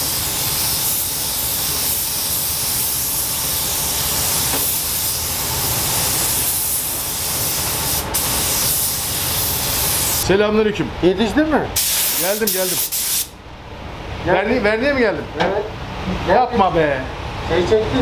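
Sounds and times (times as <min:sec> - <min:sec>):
paint spray gun hissing: 0:00.0 - 0:10.2, 0:11.8 - 0:13.3.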